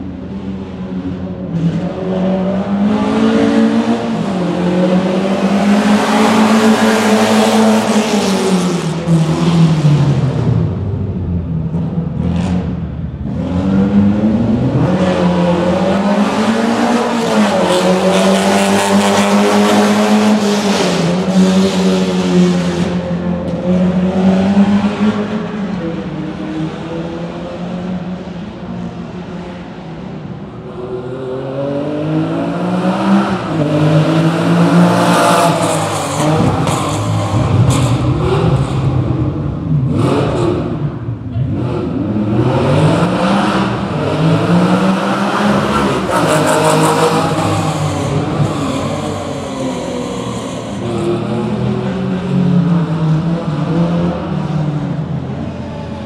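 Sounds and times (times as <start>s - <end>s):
rally car engines revving: 0.0s - 56.0s.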